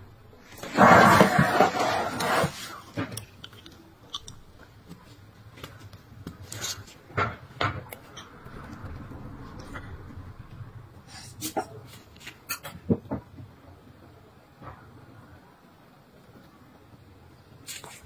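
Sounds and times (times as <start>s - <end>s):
blade scraping toenail: 0.6s - 3.1s.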